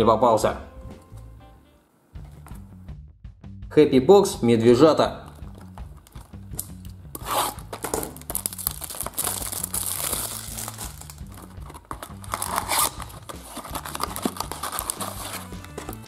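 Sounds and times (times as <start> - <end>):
packaging crinkling and tearing: 5.5 - 16.0.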